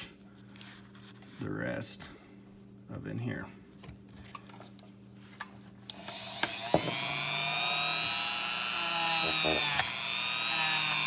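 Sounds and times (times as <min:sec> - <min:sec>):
rotary tool whine: 0:05.9 - 0:11.0.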